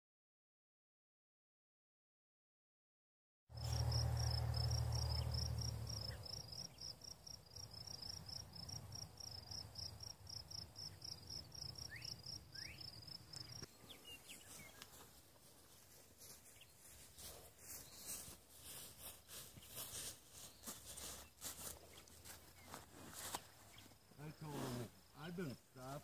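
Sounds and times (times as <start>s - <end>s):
cricket chirping: 3.5s - 13.8s, 19.8s - 26.0s.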